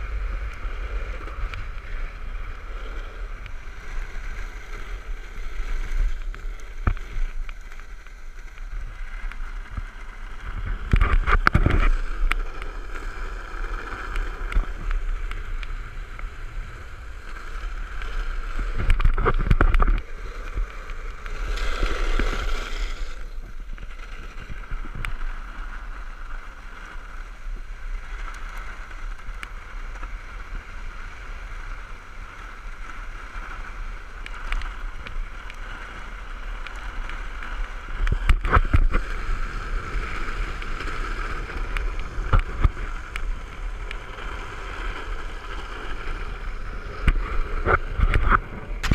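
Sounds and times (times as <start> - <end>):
wind rush: 0.0 - 28.0, 28.7 - 48.9
skateboard wheels rumbling on asphalt: 0.0 - 48.9.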